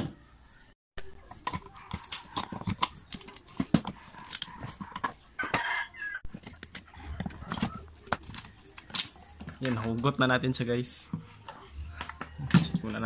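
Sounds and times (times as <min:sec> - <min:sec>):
plastic housing clicking and creaking: 0:01.2 - 0:10.2.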